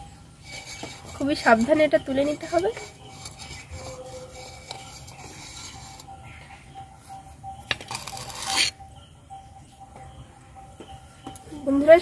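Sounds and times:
metal spatula scraping clay pot: 0:00.0 - 0:08.8.

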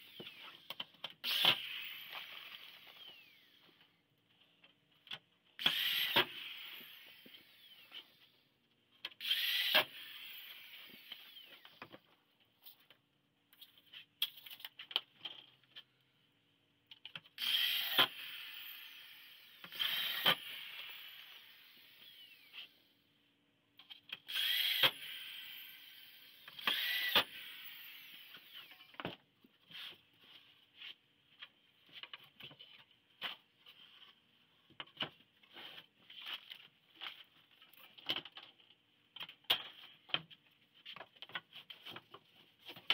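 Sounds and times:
electric drill whining: 0:00.0 - 0:03.8, 0:05.6 - 0:08.3, 0:09.2 - 0:11.8, 0:17.4 - 0:22.9, 0:24.3 - 0:29.0.

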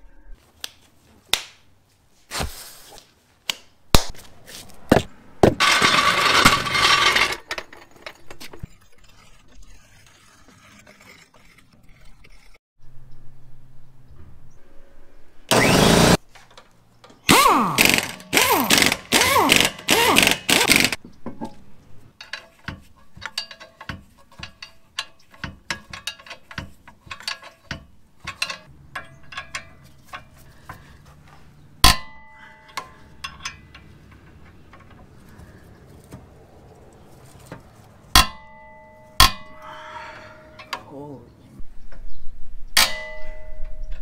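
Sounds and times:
impact wrench bursts: 0:15.5 - 0:16.2, 0:17.3 - 0:21.0
hand tools clicking and tapping: 0:22.1 - 0:31.2, 0:31.8 - 0:36.3, 0:37.5 - 0:39.7, 0:40.5 - 0:40.9
sharp metallic clang: 0:31.8 - 0:33.7, 0:38.1 - 0:39.6, 0:42.7 - 0:44.0.

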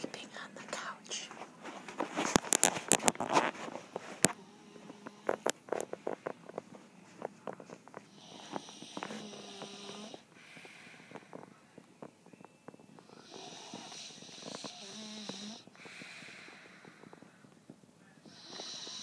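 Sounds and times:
footsteps: 0:01.2 - 0:19.0
person snoring: 0:04.3 - 0:06.2, 0:08.1 - 0:11.4, 0:13.1 - 0:17.4, 0:18.2 - 0:19.0.

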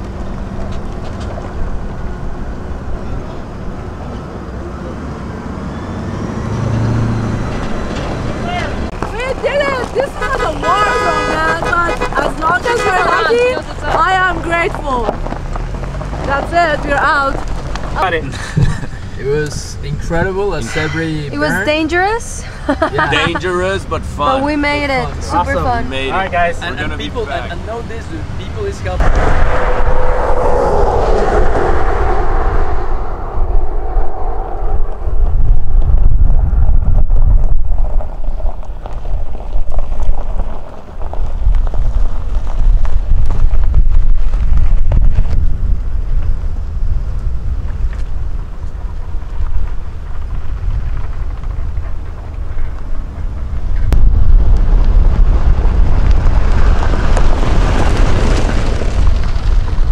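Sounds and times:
cars driving on dirt road: 0:00.0 - 0:59.9
passing vehicle: 0:00.0 - 0:59.9
wind buffeting microphone: 0:28.2 - 0:59.9.

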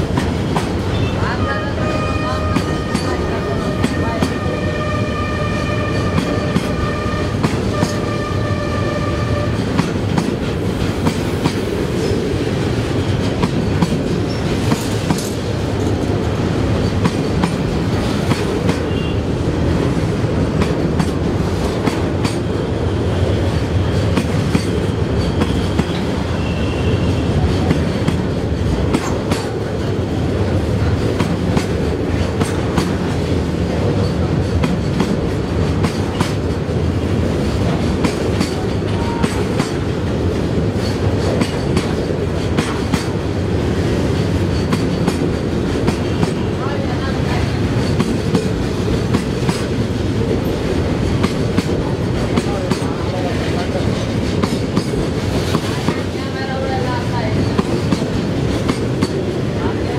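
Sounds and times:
freight train rumbling past: 0:00.0 - 0:59.9
train horn blasts: 0:00.9 - 0:09.8, 0:18.9 - 0:19.3, 0:26.4 - 0:27.5.

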